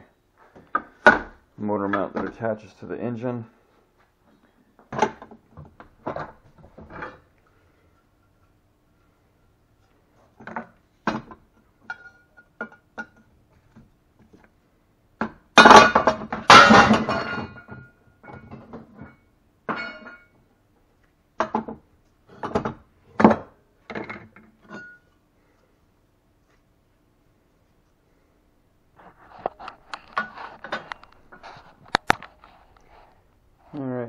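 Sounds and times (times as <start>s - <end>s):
metal tools clinking: 24.1s - 25.1s.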